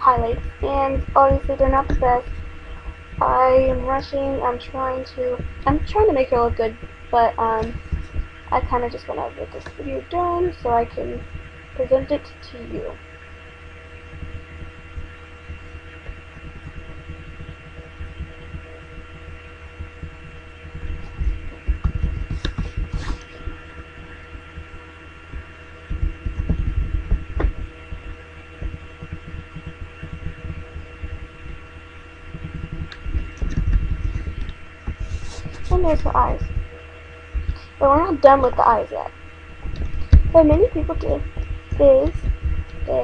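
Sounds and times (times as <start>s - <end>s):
electrical hum: 0.0s - 43.0s
low thumping: 12.8s - 43.0s.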